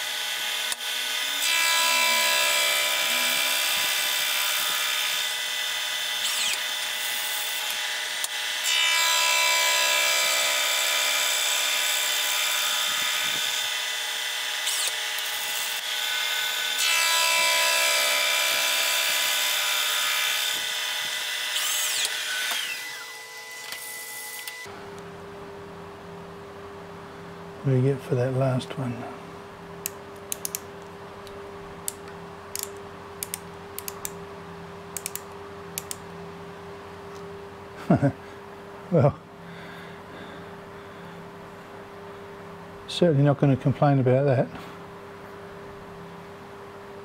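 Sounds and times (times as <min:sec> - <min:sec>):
milling machine whining: 0:00.0 - 0:25.2.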